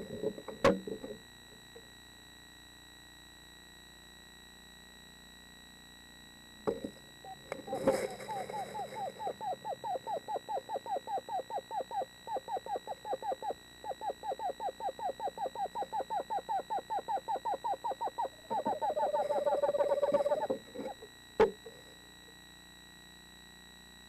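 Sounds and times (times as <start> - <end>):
screech owl trilling: 7.2 - 22.0.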